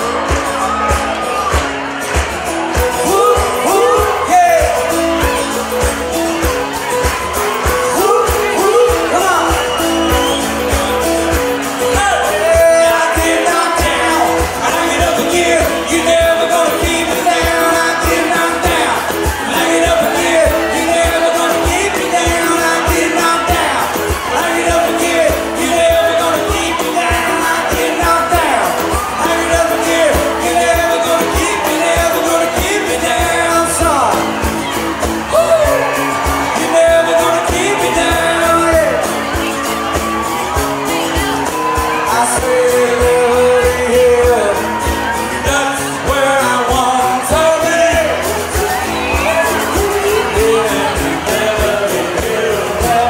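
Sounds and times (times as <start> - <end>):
country rock band playing: 0.0 - 53.0
strummed acoustic guitars: 0.0 - 53.0
person singing lead vocals: 2.8 - 53.0.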